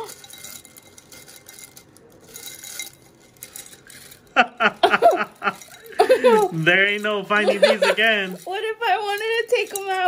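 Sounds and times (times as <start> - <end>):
plastic nail tips clattering in jar: 0.0 - 10.0
woman laughing: 4.4 - 6.6, 7.4 - 8.3.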